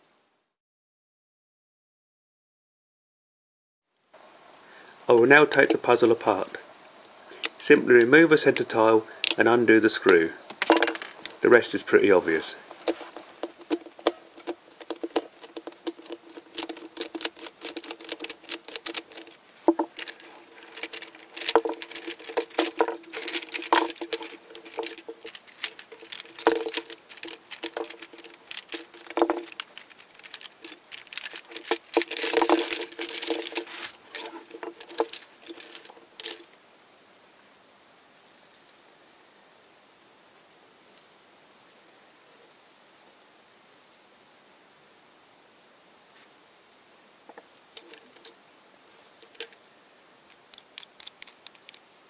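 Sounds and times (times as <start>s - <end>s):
plastic puzzle pieces clicking: 12.8s - 36.5s, 50.3s - 51.8s.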